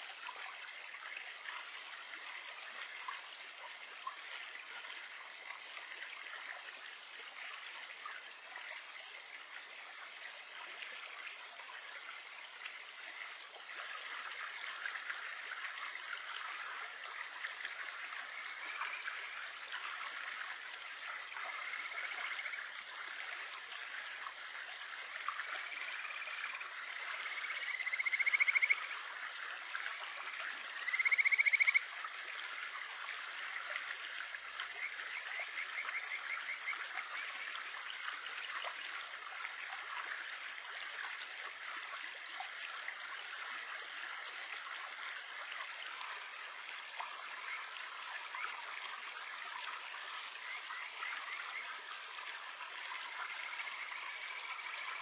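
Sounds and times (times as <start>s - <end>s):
frogs whistling calls: 27.2s - 28.8s, 30.8s - 31.8s.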